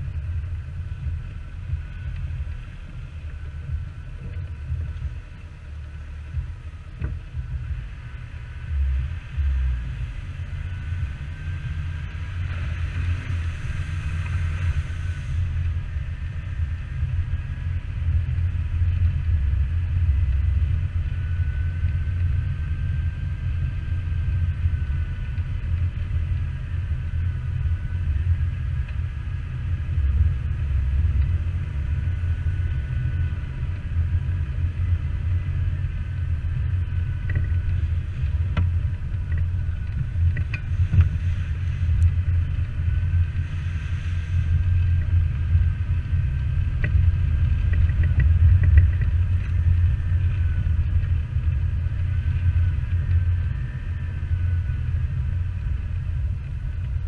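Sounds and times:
engine and road rumble: 0:00.0 - 0:57.0
faint high whine: 0:00.0 - 0:57.0.

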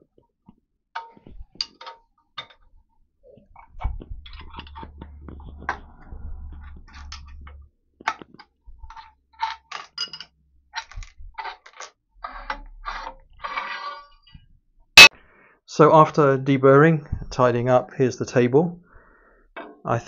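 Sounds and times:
low hum: 0:03.5 - 0:07.8
metal plate scraping on table: 0:04.3 - 0:07.6, 0:12.2 - 0:14.3
metal clamps clinking: 0:09.4 - 0:11.0.

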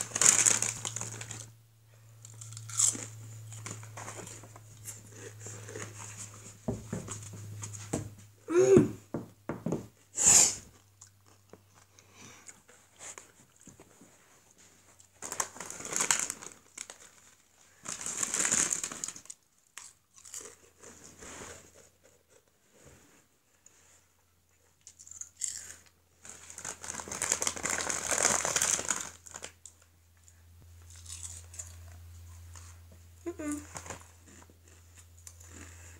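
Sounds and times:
crisp packet crinkling: 0:00.0 - 0:01.6, 0:15.1 - 0:19.4, 0:25.0 - 0:29.9.

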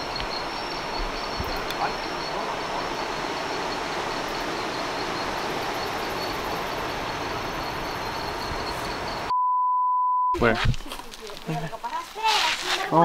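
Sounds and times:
high insect buzz: 0:00.0 - 0:09.3
river water flowing: 0:00.0 - 0:09.3
censor bleep: 0:08.1 - 0:10.4.

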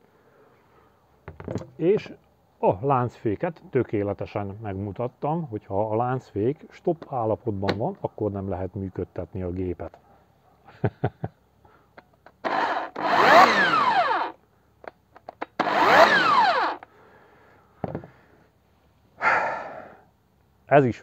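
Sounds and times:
electric chainsaw motor whine: 0:12.4 - 0:14.4, 0:15.5 - 0:16.9.

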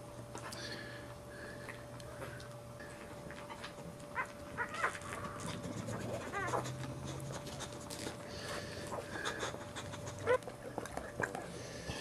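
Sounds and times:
dog whimpering: 0:04.2 - 0:07.8, 0:08.9 - 0:10.5.

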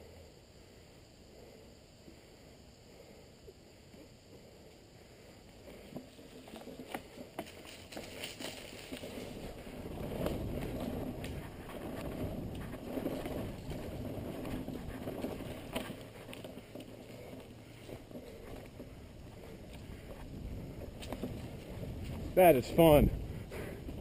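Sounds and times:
bike tyres rumbling on dirt: 0:04.4 - 0:24.0
bike clicks and rattles: 0:05.6 - 0:24.0.

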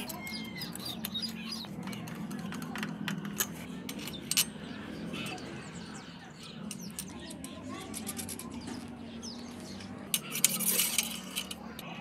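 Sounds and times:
small metal parts clicking: 0:00.0 - 0:04.6, 0:06.6 - 0:08.9, 0:09.6 - 0:11.9.

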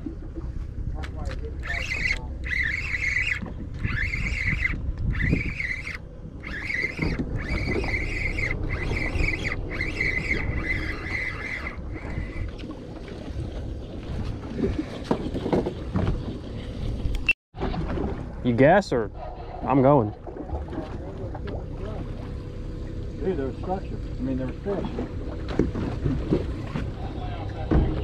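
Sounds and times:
boat engine low rumble: 0:00.0 - 0:28.0
high-pitched pulsing tone: 0:01.6 - 0:12.6
wind on microphone: 0:01.6 - 0:17.2.

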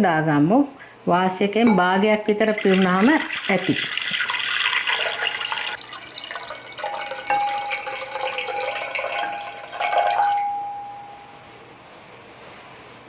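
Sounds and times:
water pouring into glass vase: 0:01.7 - 0:10.6
ringing note of filling vessel: 0:01.7 - 0:11.5.

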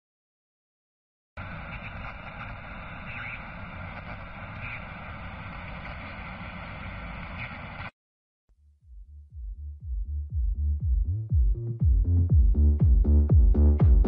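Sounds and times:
steady rushing noise: 0:01.4 - 0:07.9
low rumble: 0:08.6 - 0:13.8.

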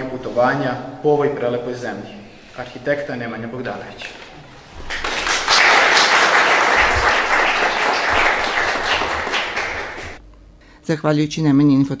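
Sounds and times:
audience applauding: 0:04.6 - 0:10.2.

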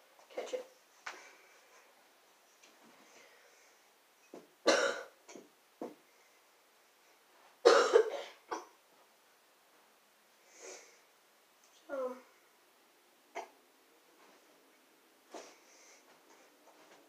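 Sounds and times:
person coughing: 0:04.7 - 0:05.1, 0:07.7 - 0:08.7.

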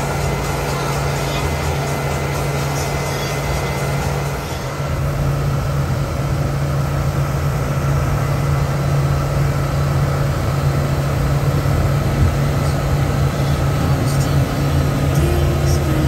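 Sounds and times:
motorboat engine droning: 0:00.0 - 0:16.0.

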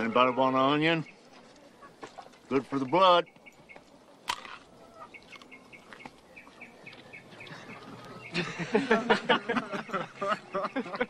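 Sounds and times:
small bird chirping: 0:00.0 - 0:08.6
loud laughter: 0:07.4 - 0:11.0.

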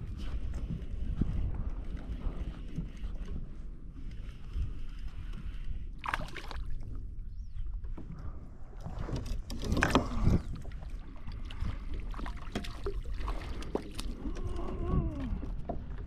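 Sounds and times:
wind rumble on microphone: 0:00.0 - 0:16.0
water splashing: 0:08.8 - 0:14.7.

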